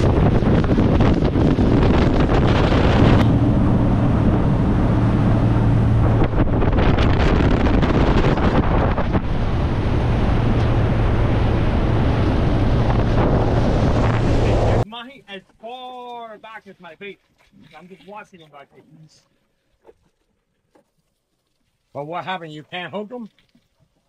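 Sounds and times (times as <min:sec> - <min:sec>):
motorboat engine drone: 0:00.0 - 0:14.8
wind buffeting microphone: 0:00.0 - 0:14.8
water rushing off hull: 0:00.0 - 0:14.9.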